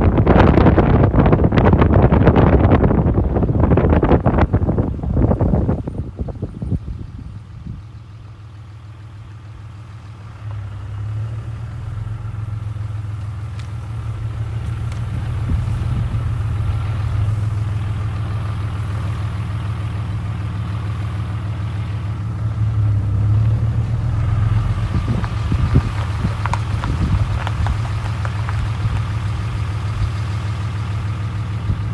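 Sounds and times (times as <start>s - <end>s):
car engine humming: 0.0s - 31.9s.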